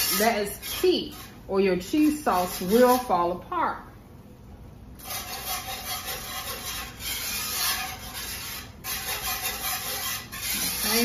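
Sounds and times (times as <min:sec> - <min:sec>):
whisk scraping a skillet: 0:00.0 - 0:03.3, 0:05.0 - 0:11.0.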